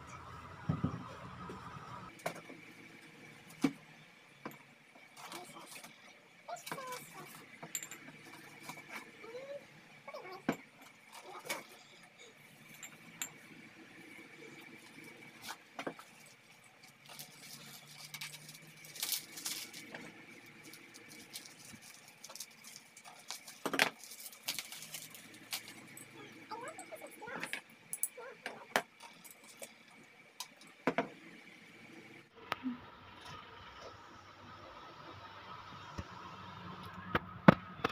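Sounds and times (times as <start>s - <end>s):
glass clinks and knocks: 7.6s - 9.0s
paper wrapping crinkling: 15.4s - 26.0s.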